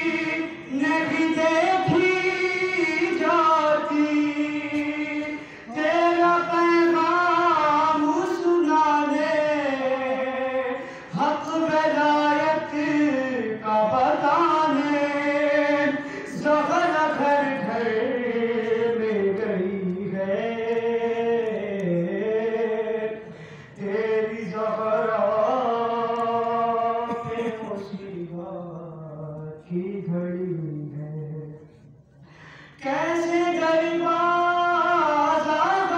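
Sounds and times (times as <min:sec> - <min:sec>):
man chanting a lament: 0:00.0 - 0:31.8, 0:32.8 - 0:35.9.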